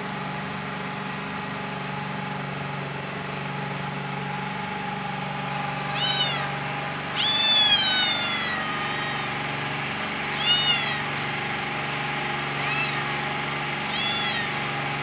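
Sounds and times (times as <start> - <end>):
steady low hum: 0.0 - 15.0
cat meowing: 5.8 - 9.4, 10.3 - 11.2, 12.6 - 14.7.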